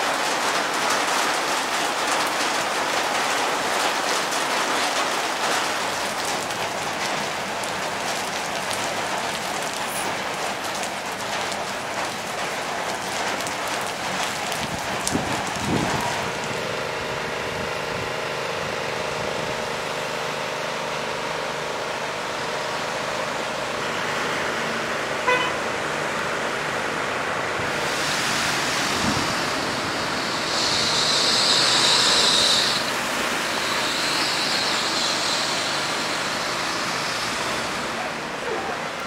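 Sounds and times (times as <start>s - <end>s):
rain hissing: 0.0s - 39.0s
rushing splashing water: 0.0s - 39.0s
cars passing: 22.6s - 39.0s
car horn tooting: 25.2s - 25.6s
running water: 27.3s - 39.0s.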